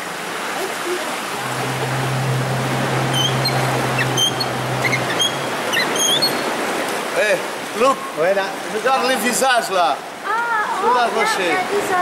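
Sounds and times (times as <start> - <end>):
boat engine humming: 1.1 - 7.6
short high chirps: 1.4 - 6.6.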